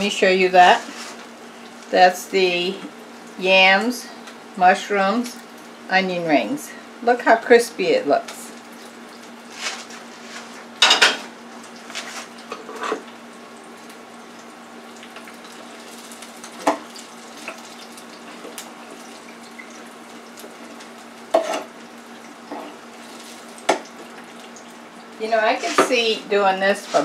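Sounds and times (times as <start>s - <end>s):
frying oil sizzling: 0.0s - 27.0s.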